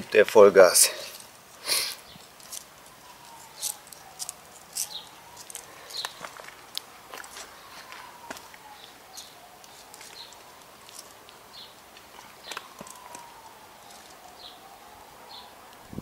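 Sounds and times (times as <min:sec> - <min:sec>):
tortoise claws scraping on concrete: 0:01.0 - 0:07.6, 0:09.1 - 0:11.7.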